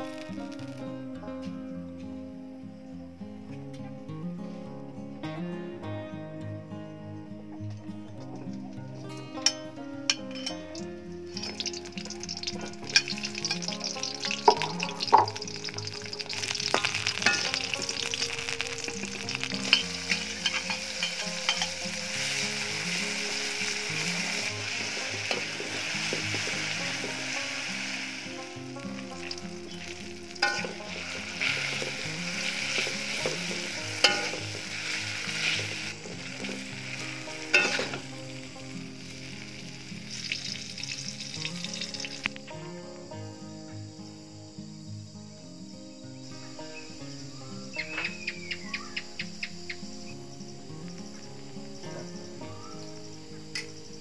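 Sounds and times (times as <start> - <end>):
vegetables sizzling in a wok: 0.0 - 0.8, 9.4 - 42.5
metal spatula scraping a pan: 11.5 - 22.7, 29.2 - 38.1.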